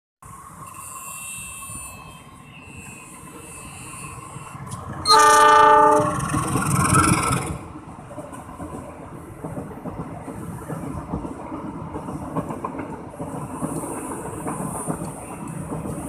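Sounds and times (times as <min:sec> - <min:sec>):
train engine and wheels rumbling: 0:00.2 - 0:16.0
train horn blast: 0:05.0 - 0:06.2.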